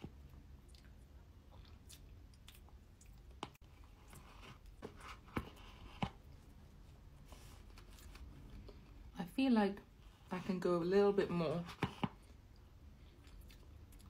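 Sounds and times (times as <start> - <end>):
soft chewing: 0.0 - 9.1, 12.0 - 14.0.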